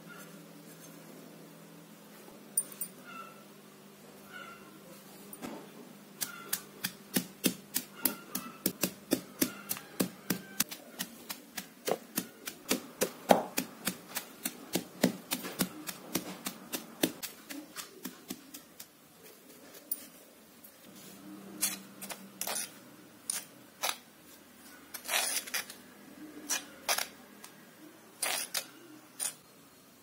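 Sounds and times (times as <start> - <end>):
pestle pounding in stone mortar: 6.2 - 18.8.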